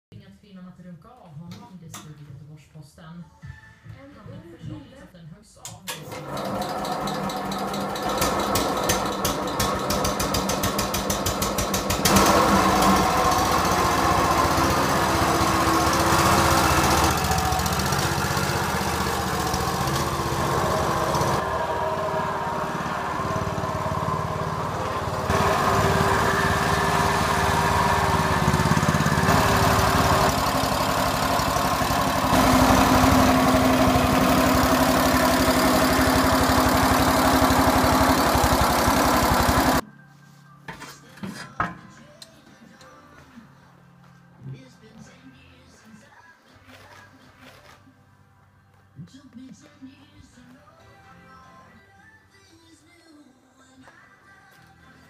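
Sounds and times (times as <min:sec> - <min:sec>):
garden tractor engine running: 0:05.9 - 0:39.8.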